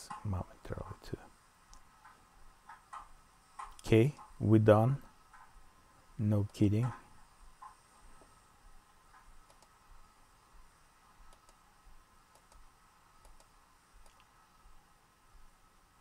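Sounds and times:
computer mouse clicks: 0:01.7 - 0:04.3, 0:09.1 - 0:09.8, 0:11.3 - 0:11.6, 0:12.3 - 0:14.4.

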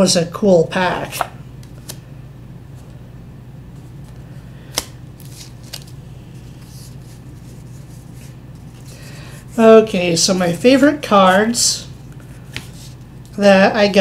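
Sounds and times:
low room hum: 0:00.0 - 0:14.0
packaging rustling: 0:04.0 - 0:08.9.

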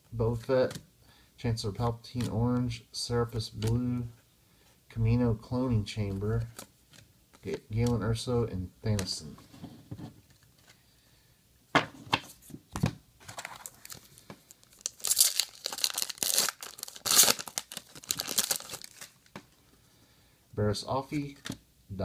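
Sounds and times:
foil wrapper tearing and crinkling: 0:13.5 - 0:19.3.

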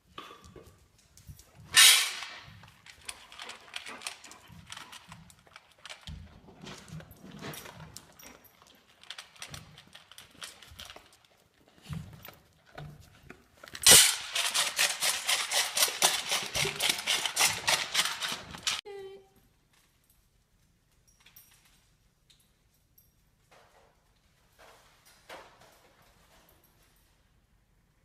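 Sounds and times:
dog claws clicking on concrete: 0:00.2 - 0:18.8.

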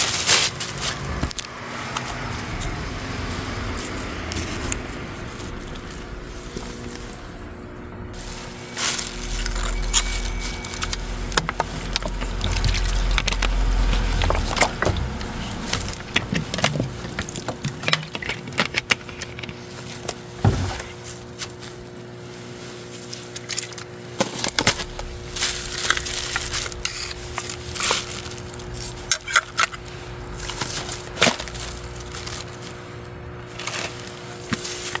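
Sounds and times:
plastic and foil crinkling: 0:00.0 - 0:07.5, 0:08.1 - 0:35.0
handling clicks and knocks: 0:11.3 - 0:20.9.

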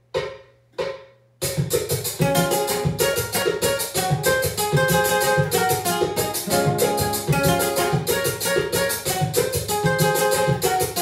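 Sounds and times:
acoustic guitar strumming: 0:02.2 - 0:11.0.

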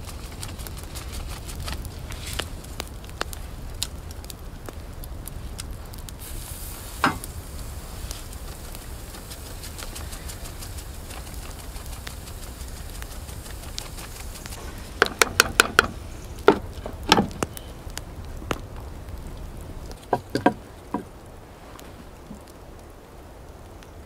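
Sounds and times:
meat sizzling on a grill: 0:00.0 - 0:17.8
small crackling pops: 0:00.0 - 0:24.0.

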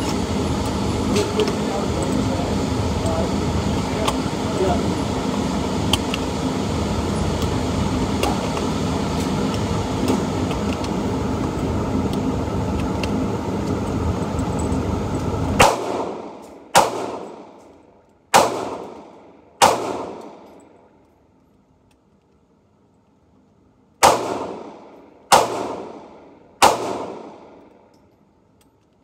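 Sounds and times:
gunshots echoing: 0:15.6 - 0:17.6, 0:18.3 - 0:20.5, 0:24.0 - 0:27.6.

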